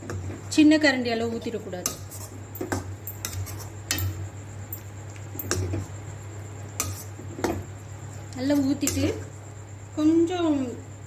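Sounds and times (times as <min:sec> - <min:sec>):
metal spatula scraping a pan: 0:01.8 - 0:04.2, 0:06.8 - 0:07.2.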